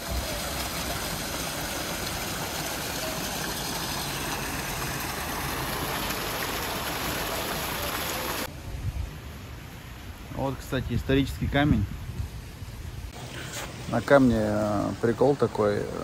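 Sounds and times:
fountain water splashing into basin: 0.0 - 8.5.

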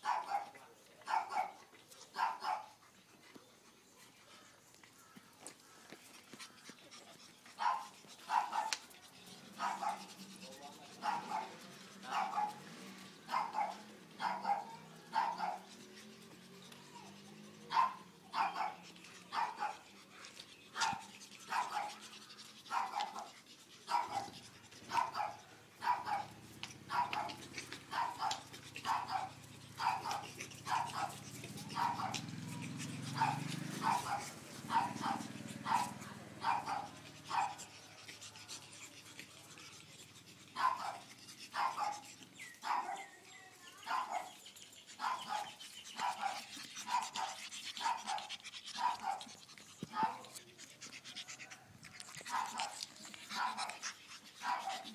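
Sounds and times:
puppy yapping: 23.9 - 38.7, 43.8 - 54.9.

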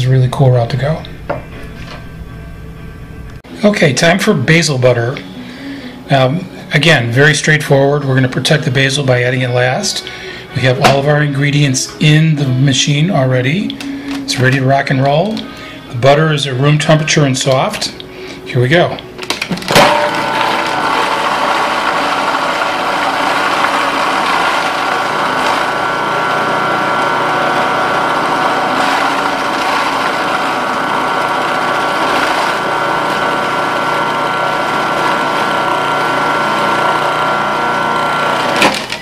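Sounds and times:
food processor motor running: 19.7 - 39.0.

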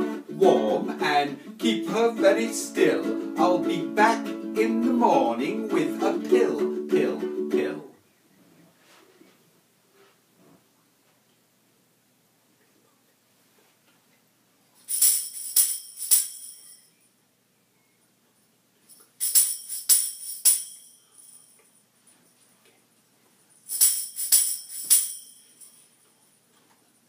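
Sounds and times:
bells jingling: 14.9 - 17.1, 18.9 - 22.5, 23.4 - 26.4.

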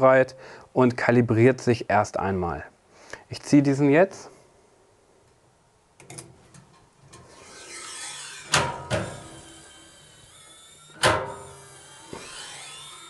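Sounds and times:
small motor whirring: 7.2 - 13.0.

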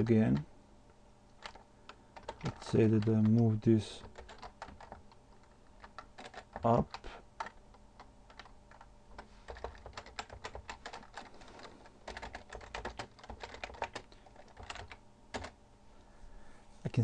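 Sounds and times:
computer keyboard typing: 1.4 - 15.6.

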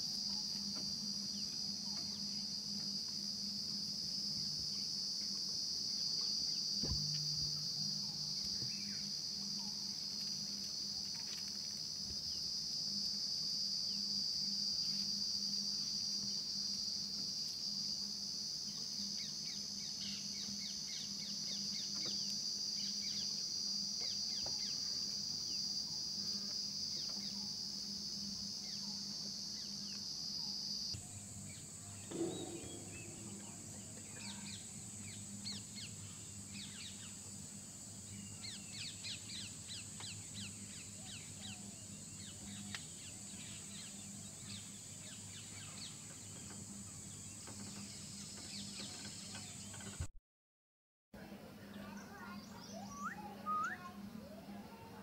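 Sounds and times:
high-pitched insect chorus: 0.0 - 50.1, 51.8 - 55.0
low bird call: 52.2 - 54.1.

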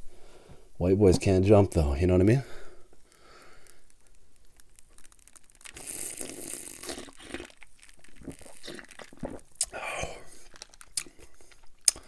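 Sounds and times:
swallowing clicks: 2.9 - 12.0
slurping drink: 3.2 - 12.0.

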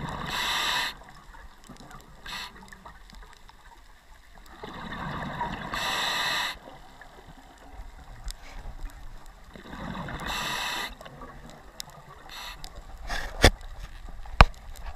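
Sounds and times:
diver breathing through regulator: 0.0 - 1.1, 2.2 - 2.6, 5.6 - 6.7, 9.8 - 11.1, 12.2 - 13.5.

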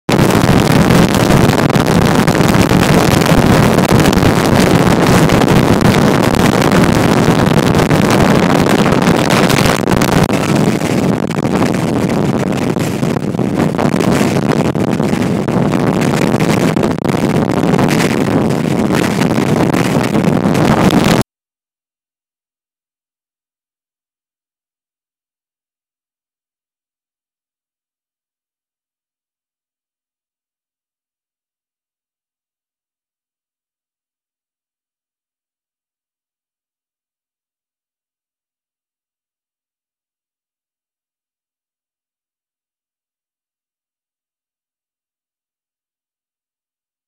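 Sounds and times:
wind buffeting microphone: 0.1 - 21.2.

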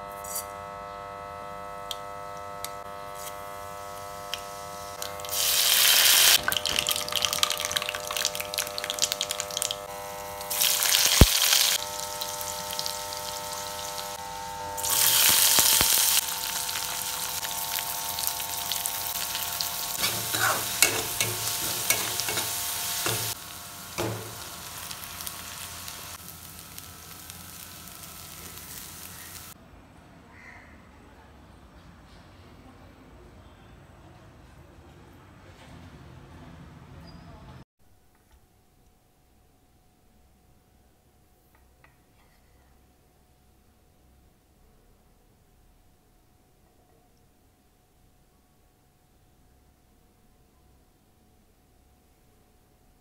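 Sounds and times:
hot oil sizzling: 4.4 - 29.6
spatula scraping a pan: 20.0 - 23.4.

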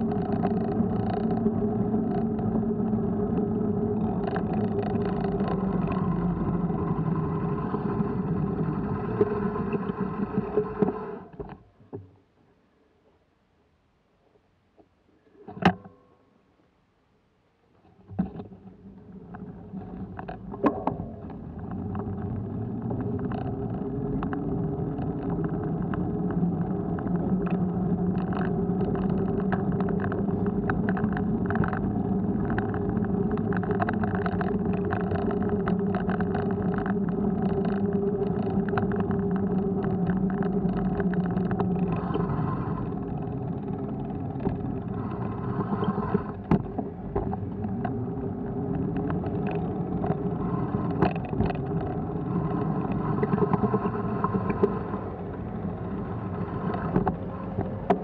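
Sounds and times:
rolling rumble over paving: 0.0 - 12.0, 17.9 - 58.0
small knocks and rattles: 3.3 - 6.5, 17.8 - 42.2, 48.7 - 54.9.

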